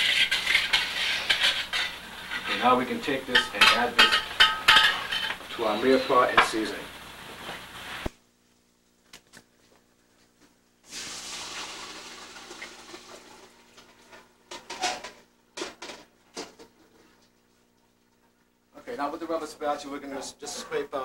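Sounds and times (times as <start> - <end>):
metal bowl clanking against pot: 0.0 - 5.4
tomatoes pouring into a pot: 10.9 - 13.6.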